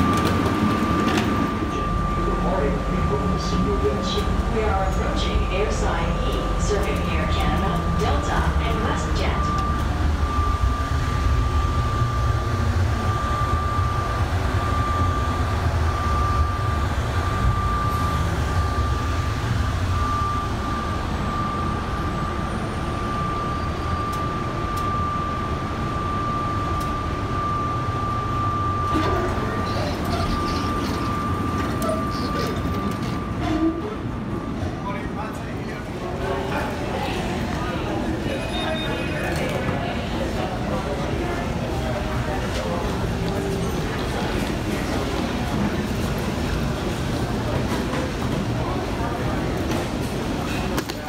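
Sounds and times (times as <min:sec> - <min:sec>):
high-pitched whine: 0:00.0 - 0:34.0
train low rumble: 0:00.0 - 0:51.0.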